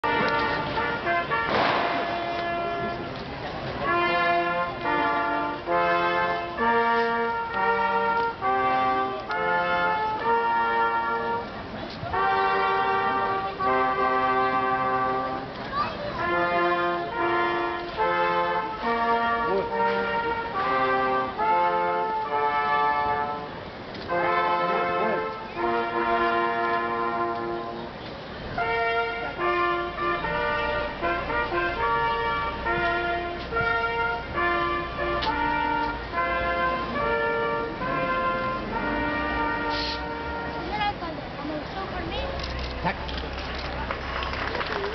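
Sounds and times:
brass band playing held chords: 0.0 - 41.0.

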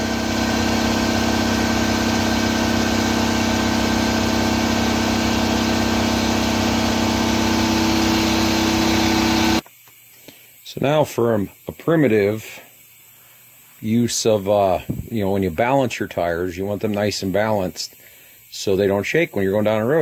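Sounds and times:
motor-driven machine humming: 0.0 - 9.7.

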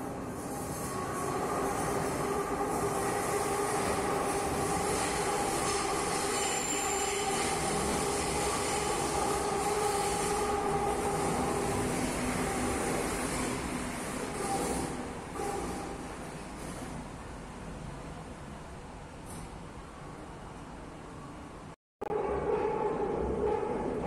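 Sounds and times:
high squealing train tones: 0.0 - 16.9
metro train running noise: 0.0 - 24.0.

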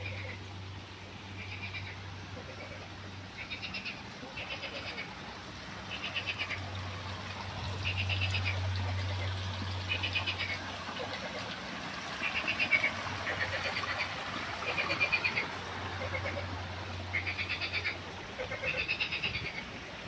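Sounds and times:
frogs croaking: 0.0 - 0.5, 1.3 - 20.0
stream trickling: 0.0 - 20.0.

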